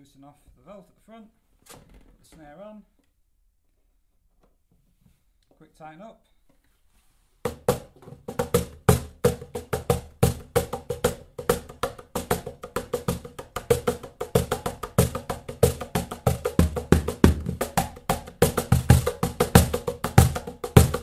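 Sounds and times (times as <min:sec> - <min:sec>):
cajon bass strokes: 0:07.4 - 0:21.0
cajon snare strokes: 0:07.4 - 0:21.0.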